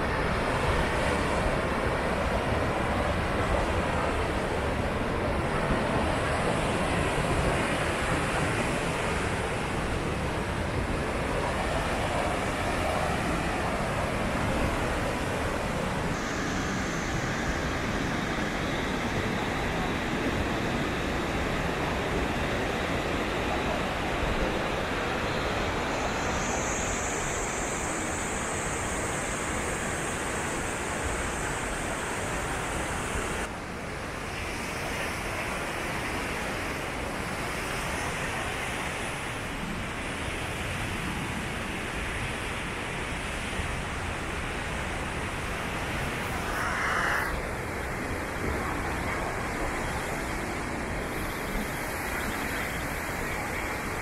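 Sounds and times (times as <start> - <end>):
rushing river water: 0.0 - 54.0
waterfall rushing: 44.6 - 54.0.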